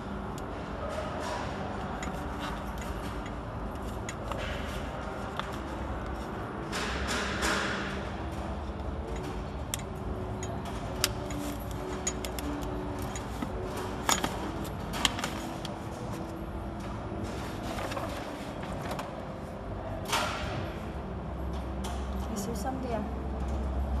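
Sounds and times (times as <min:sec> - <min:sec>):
metal parts clicking and tapping: 0:01.2 - 0:16.3.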